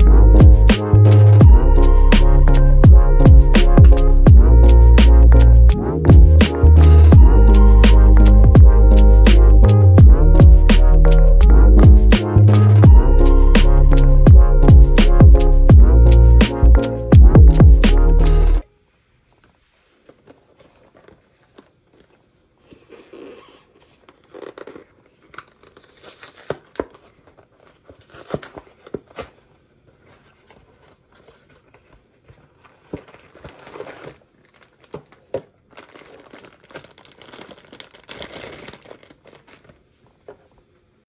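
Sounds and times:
packaging torn and crinkled: 24.0 - 29.5, 30.4 - 39.8.

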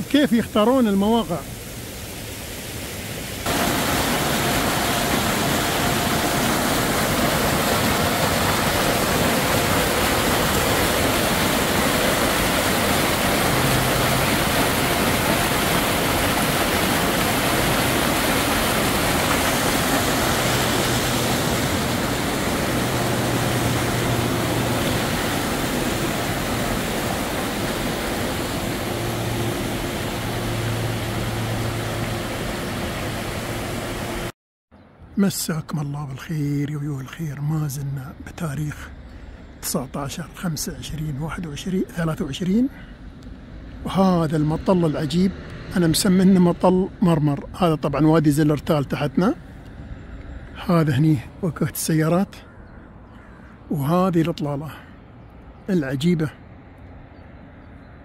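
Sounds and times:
stream rushing over boulders: 0.0 - 34.3.

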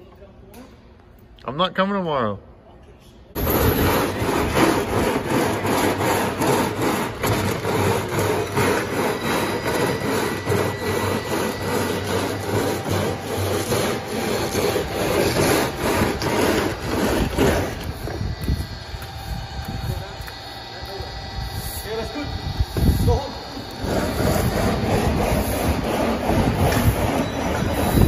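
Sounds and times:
plastic bin scraping on granules: 3.4 - 17.8.

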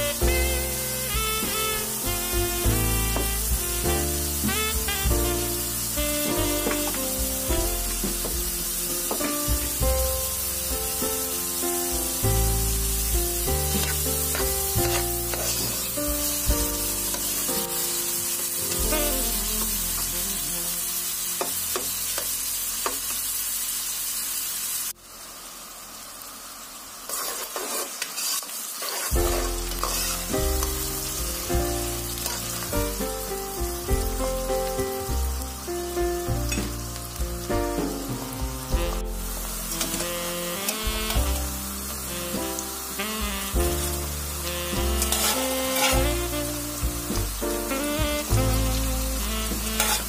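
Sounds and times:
background music: 0.0 - 21.8, 29.2 - 50.0
onions sizzling in hot oil: 0.0 - 50.0.

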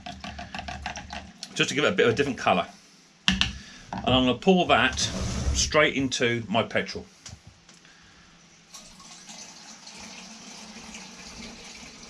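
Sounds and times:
water pouring into plastic container: 0.0 - 1.6, 8.7 - 12.0.

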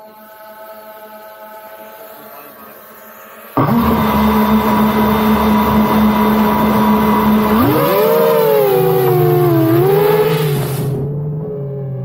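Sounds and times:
drone motors humming: 2.8 - 12.0.

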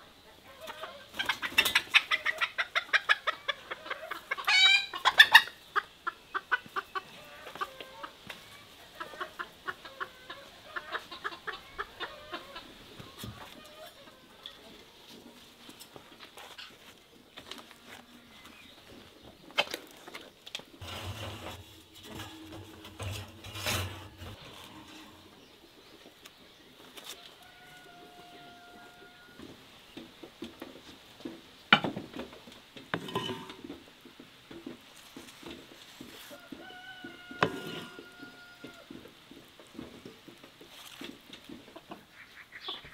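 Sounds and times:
cookware knocking and clinking: 33.0 - 33.6.

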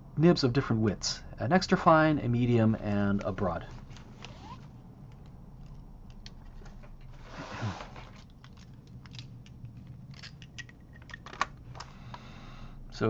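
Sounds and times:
plastic pens clicking together: 8.3 - 11.5.

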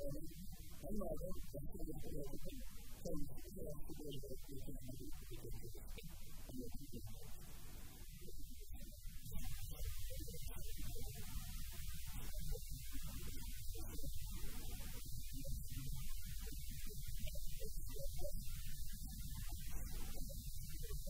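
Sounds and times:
low mains hum: 0.0 - 21.0.

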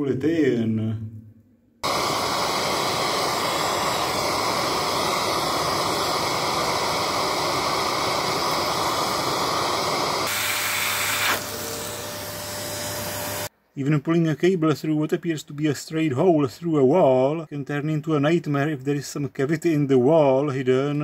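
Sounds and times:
faint steady whine: 1.8 - 10.3
vacuum cleaner running: 1.8 - 13.5.

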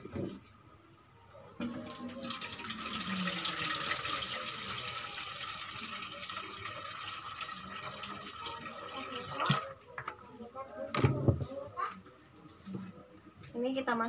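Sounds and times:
water pouring into a steel pot: 1.6 - 9.8.

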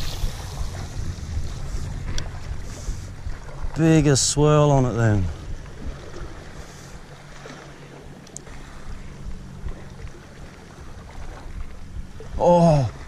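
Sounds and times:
sea washing against rocks: 0.0 - 5.3
wind rumbling on microphone: 0.0 - 13.0.

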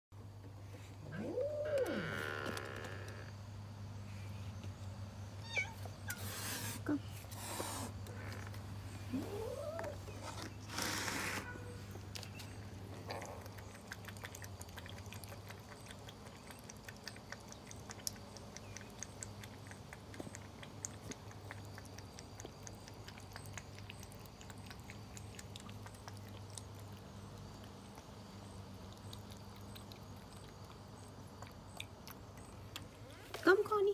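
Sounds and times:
cats crunching dry kibble: 7.4 - 33.7
low steady hum: 11.4 - 33.9.

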